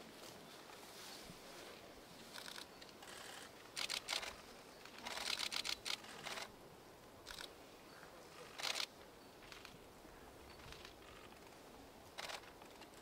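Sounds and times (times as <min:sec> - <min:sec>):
camera shutter clicks: 0:02.4 - 0:04.4, 0:05.0 - 0:06.5, 0:08.6 - 0:08.9, 0:12.2 - 0:12.5.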